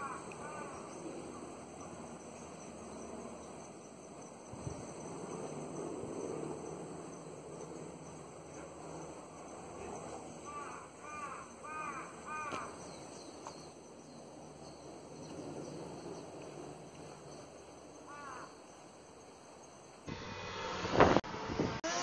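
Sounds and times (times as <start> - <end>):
crow cawing: 0.0 - 1.0, 10.4 - 12.8, 18.1 - 18.5.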